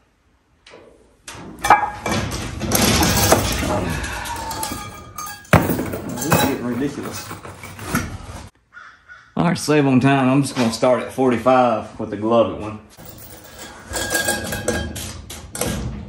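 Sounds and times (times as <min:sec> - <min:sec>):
chain rattling against metal hooks: 0:01.6 - 0:08.4, 0:13.0 - 0:15.5.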